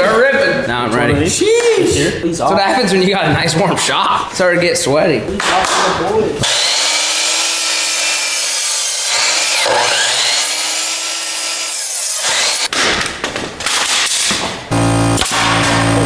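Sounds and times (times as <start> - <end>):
miter saw cutting wood: 6.4 - 12.7, 14.7 - 16.0.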